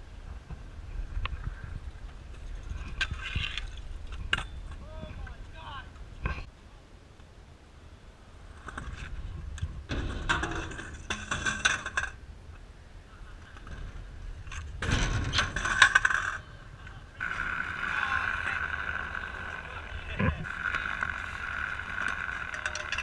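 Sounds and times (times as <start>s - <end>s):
scooter wheels scraping concrete: 13.4s - 23.0s.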